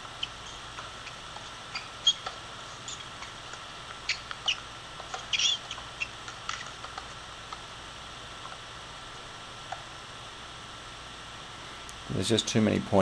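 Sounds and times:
shoes squeaking on court: 0.2 - 6.9.

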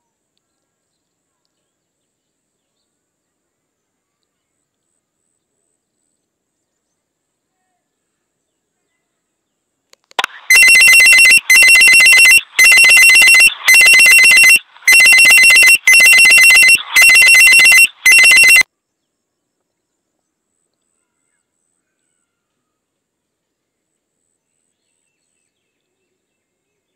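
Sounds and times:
two-tone electronic alarm rings: 10.2 - 18.6.

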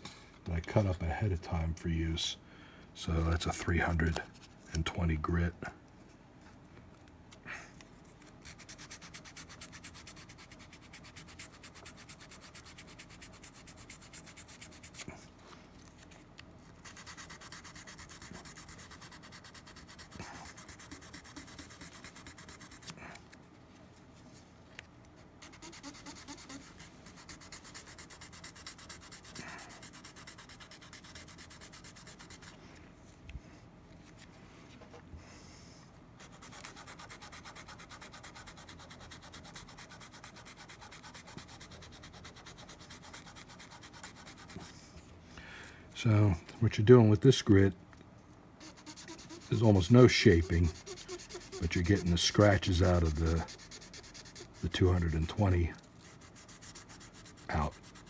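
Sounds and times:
sandpaper scraping metal: 8.4 - 15.1, 16.8 - 22.9, 25.4 - 32.6, 36.2 - 44.8, 48.6 - 58.0.

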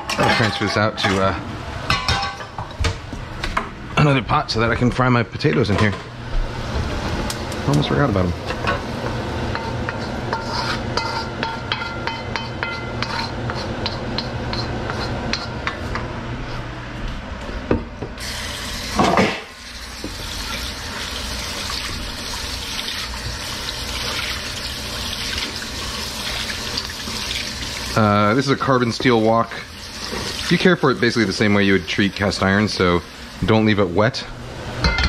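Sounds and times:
spoon scraping a wok: 9.5 - 16.0
tap water running into wok: 18.2 - 33.6.

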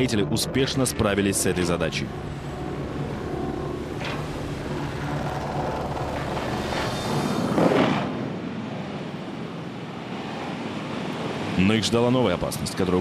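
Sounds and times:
background music: 0.0 - 6.8
machinery rumble: 0.0 - 8.2.

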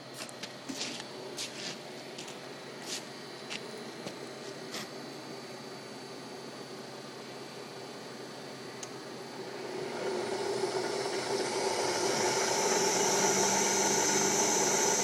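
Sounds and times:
lathe spindle hum and whine: 0.0 - 15.0.

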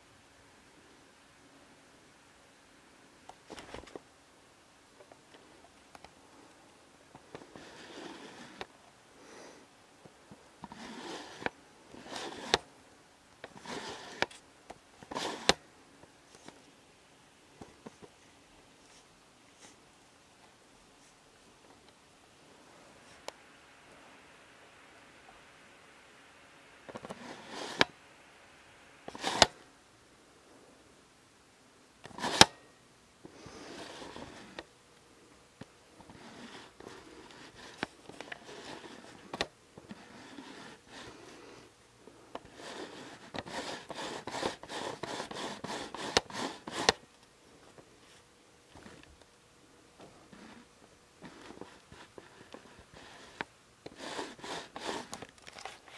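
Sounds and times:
camera handling rustles: 26.9 - 27.9, 29.1 - 29.6, 51.2 - 55.9.

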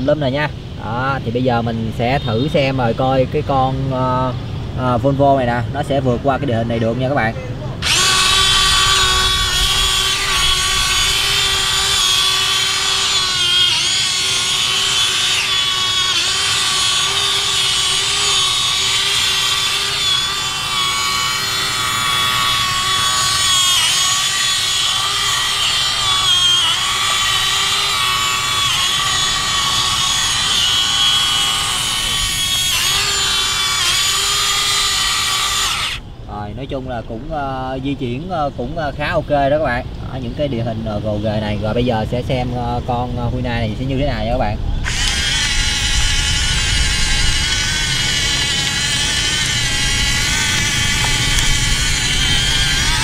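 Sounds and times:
toy excavator motors whining: 7.8 - 36.0, 44.4 - 53.0.

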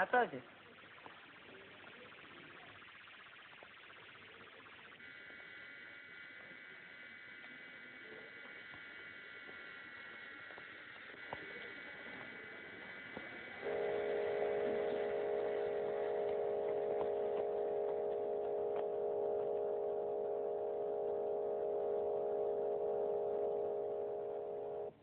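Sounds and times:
high electronic tone: 0.0 - 6.0, 13.6 - 25.0
synthesizer chord: 13.6 - 25.0.

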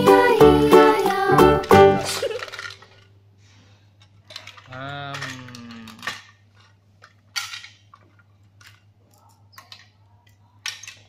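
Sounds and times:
wooden toys clacking: 1.6 - 3.2, 4.0 - 11.0.

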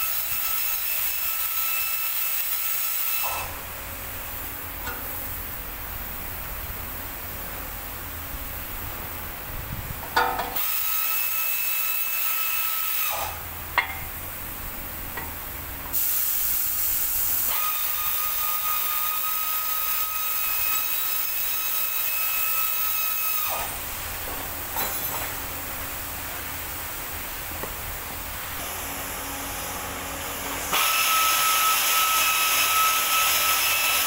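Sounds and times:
sharp metal knock: 10.2 - 10.6.

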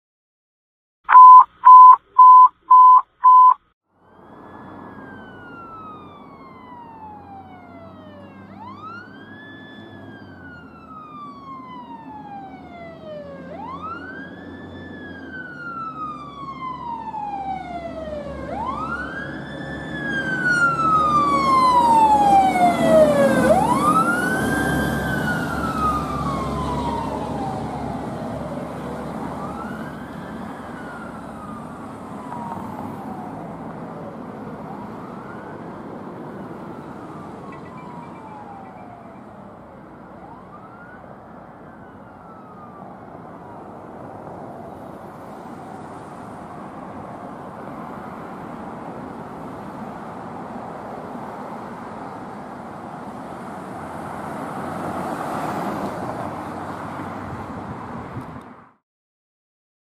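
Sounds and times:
loud electronic beeps: 1.1 - 3.6
fire truck siren wailing: 2.8 - 56.3.

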